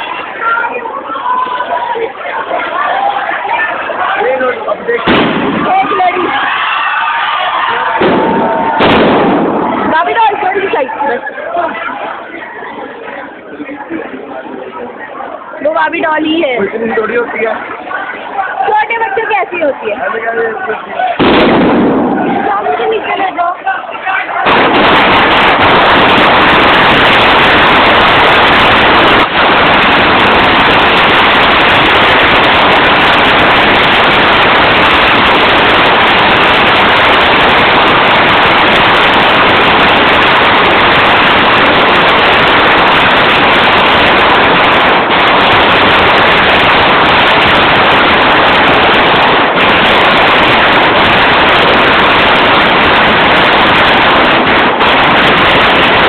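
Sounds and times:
firecrackers crackling: 0.0s - 11.5s, 15.6s - 56.0s.

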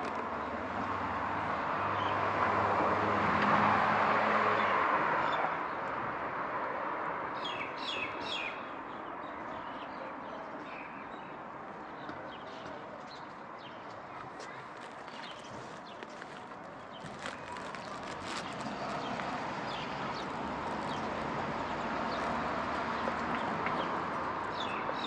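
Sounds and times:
faint street background: 0.0s - 25.0s
vehicle passing: 17.0s - 25.0s.

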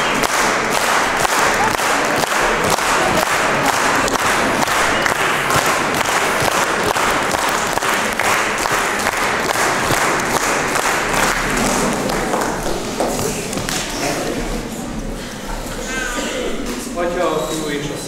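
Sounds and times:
audience applauding: 0.0s - 14.4s.

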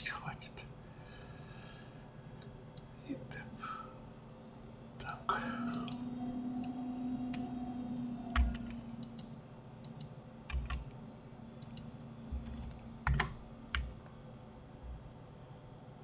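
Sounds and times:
faint low hum: 0.0s - 16.0s
keyboard keystrokes: 8.3s - 10.9s, 11.6s - 14.0s
mouse clicks: 8.4s - 10.8s, 11.6s - 11.9s.

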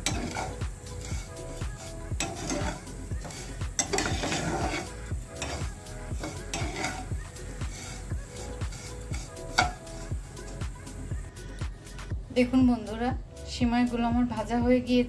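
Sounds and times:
spatula scraping frying pan: 0.0s - 10.6s
light sizzle: 0.0s - 11.3s
background music with beat: 0.0s - 15.0s.

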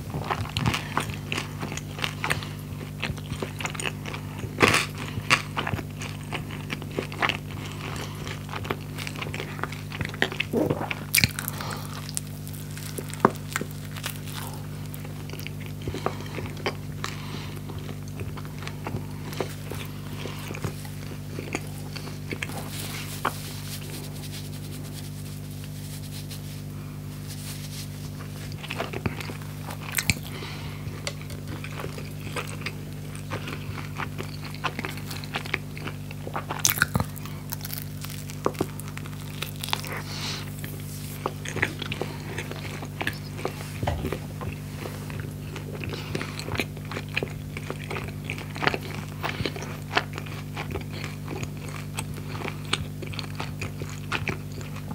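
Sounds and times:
steady low hum: 0.0s - 54.9s
crunching bites of crust: 0.1s - 54.9s
wet chewing clicks: 28.5s - 54.9s.

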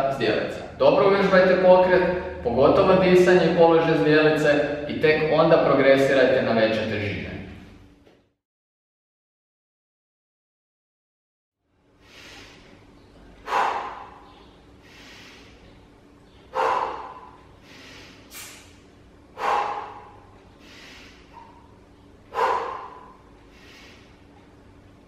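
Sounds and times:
man breathing out hard: 13.4s - 15.6s
soft breath in: 22.3s - 24.1s.

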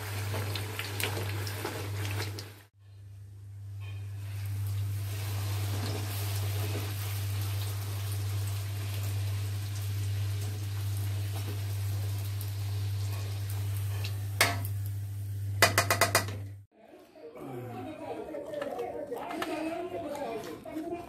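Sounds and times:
oil sizzling and bubbling: 0.0s - 16.7s.

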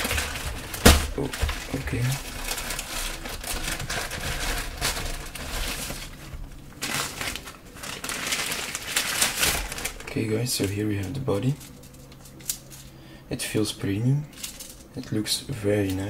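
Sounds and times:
protective wrapping rustling: 0.0s - 13.0s, 14.3s - 15.0s.

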